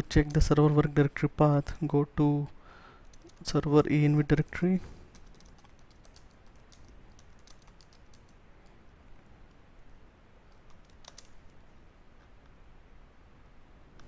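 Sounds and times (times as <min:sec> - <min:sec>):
faint typing on computer keyboard: 0:02.9 - 0:03.6, 0:04.4 - 0:11.7.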